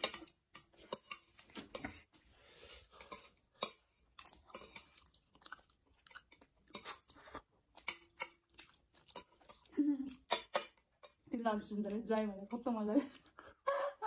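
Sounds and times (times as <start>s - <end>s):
chewing: 0.5s - 11.3s
chopsticks tapping on plates: 9.1s - 11.2s.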